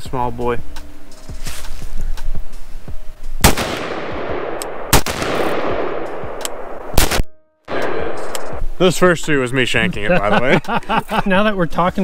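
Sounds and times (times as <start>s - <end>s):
rifle shots with rolling echo: 3.4s - 8.6s.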